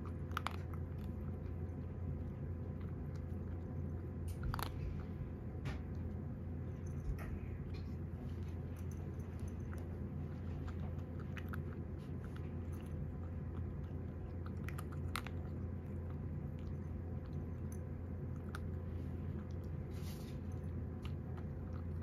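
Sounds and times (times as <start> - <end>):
cat crunching dry kibble: 0.0 - 22.0
steady low hum: 0.0 - 22.0.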